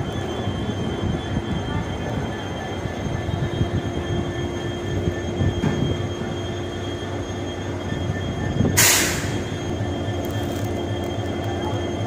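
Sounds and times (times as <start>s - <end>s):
train engine droning: 0.0s - 12.0s
loud hiss: 8.8s - 9.4s.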